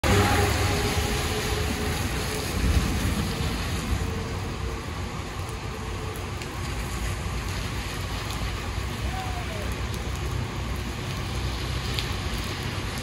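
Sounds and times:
low rumble: 0:00.0 - 0:07.9
rain on wet pavement: 0:00.0 - 0:13.0.

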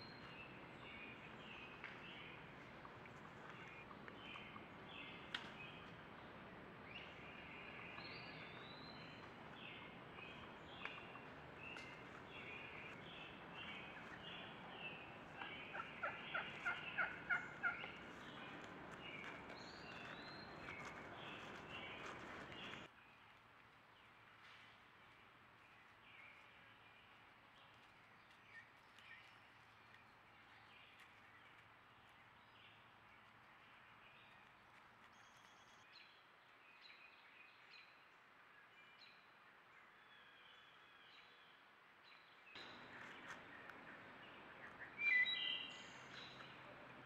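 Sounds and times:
songbird chirps: 0:00.0 - 0:47.0
wild turkey calling: 0:10.2 - 0:22.9, 0:42.6 - 0:46.9.

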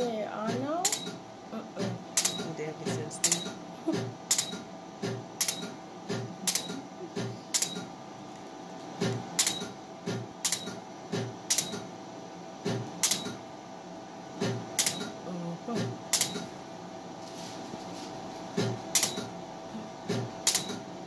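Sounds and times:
steady hum: 0:00.0 - 0:21.0
laser handpiece clicks with thuds: 0:09.0 - 0:11.9.

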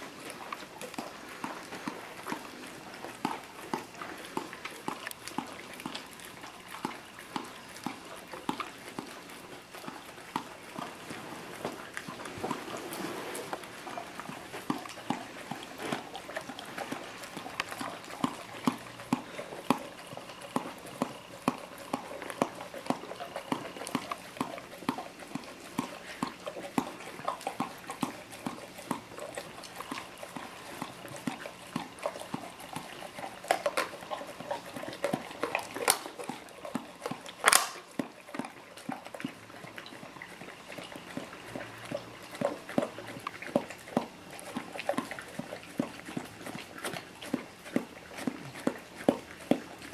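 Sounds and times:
dog licking ice cream: 0:00.0 - 0:49.9.

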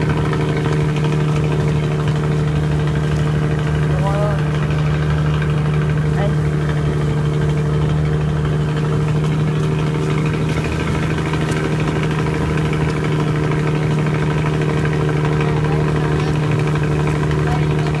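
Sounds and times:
boat engine running: 0:00.0 - 0:18.0
water rushing past hull: 0:00.0 - 0:18.0.

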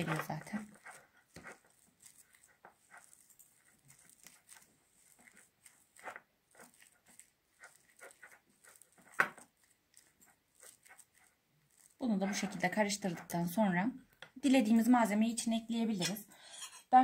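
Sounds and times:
fork scraping in ceramic bowl: 0:16.0 - 0:17.0.

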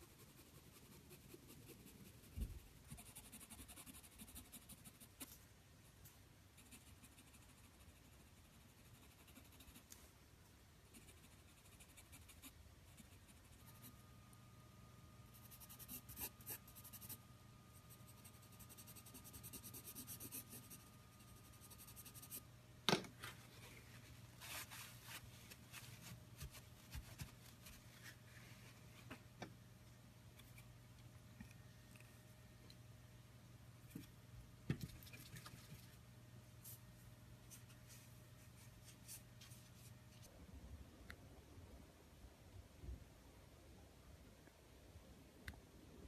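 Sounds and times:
pencil scratching on paper: 0:00.0 - 0:05.2, 0:06.6 - 0:09.8, 0:10.9 - 0:13.9, 0:17.9 - 0:22.4
faint steady hum: 0:00.0 - 0:46.0.

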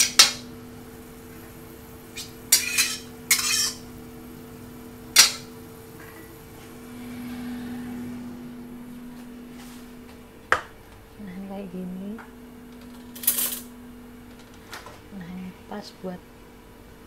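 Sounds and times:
steady low hum: 0:00.0 - 0:17.0
crockery and metal pot clinking: 0:02.2 - 0:03.9, 0:05.1 - 0:06.3.

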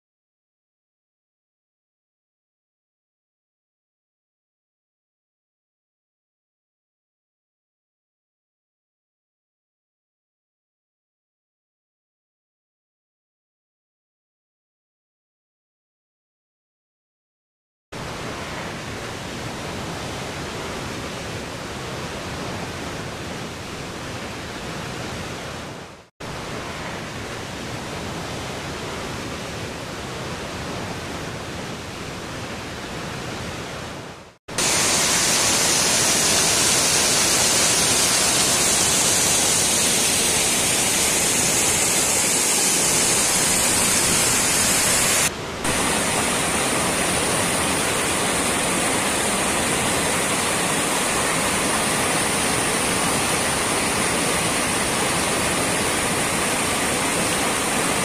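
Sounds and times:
waterfall rushing over rocks: 0:34.5 - 0:58.0.

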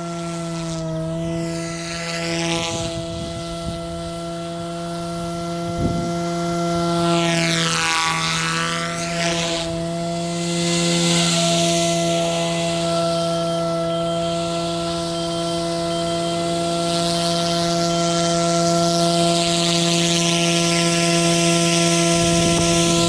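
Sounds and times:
rc helicopter hum: 0:00.0 - 0:23.0.

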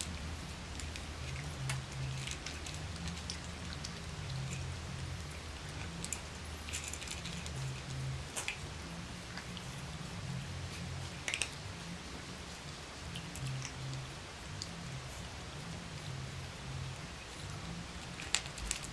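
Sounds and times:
puppies crunching dry kibble: 0:00.0 - 0:18.9.

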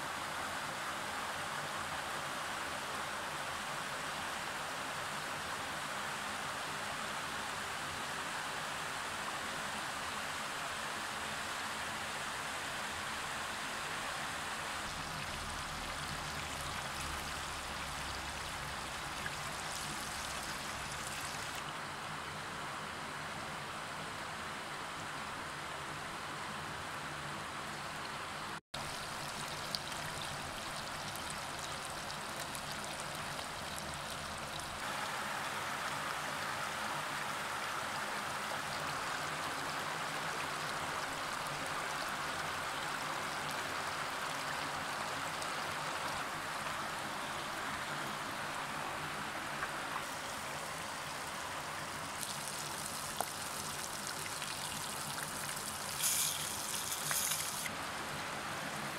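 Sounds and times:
river water over pebbles: 0:08.6 - 0:21.9, 0:28.0 - 0:58.9.

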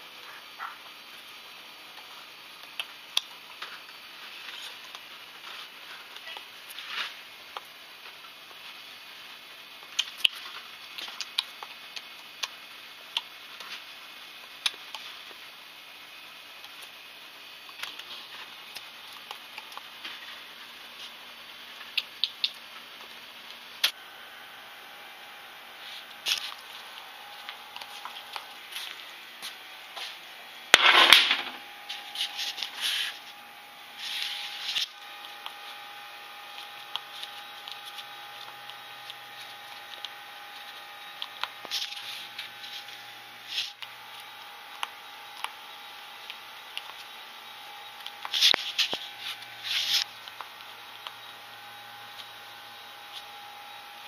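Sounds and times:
faint steady hum: 0:00.0 - 0:54.0.

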